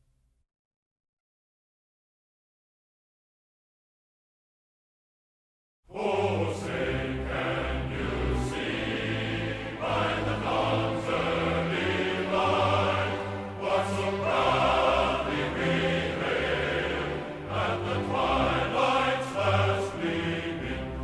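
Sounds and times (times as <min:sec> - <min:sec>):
background music with held chords: 0:05.9 - 0:21.0.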